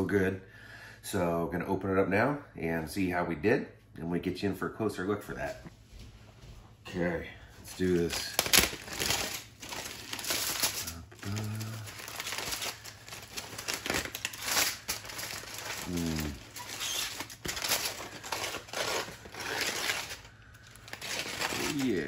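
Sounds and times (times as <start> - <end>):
aluminium foil crinkling: 7.6 - 22.0.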